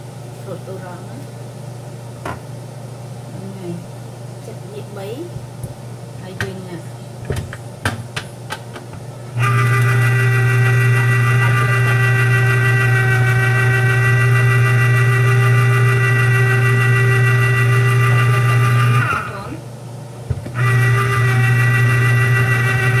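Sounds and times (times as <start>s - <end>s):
juicer motor humming and whining: 9.1s - 23.0s.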